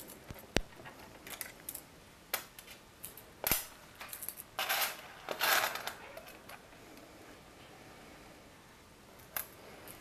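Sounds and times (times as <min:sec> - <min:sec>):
metallic rattle of screws: 0:04.0 - 0:06.0.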